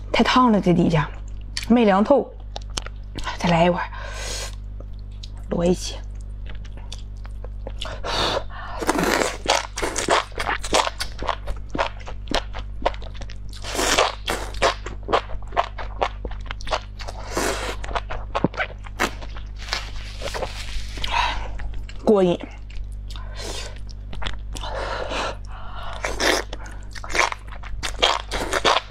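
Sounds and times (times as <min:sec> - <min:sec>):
crunchy wet chewing: 0:08.8 - 0:28.9.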